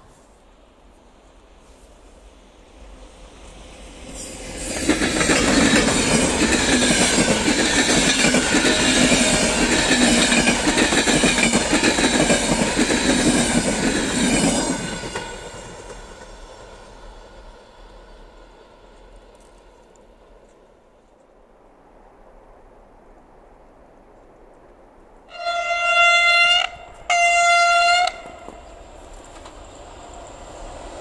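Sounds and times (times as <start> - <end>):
train wheels clattering on rails: 3.8 - 16.8, 27.9 - 31.0.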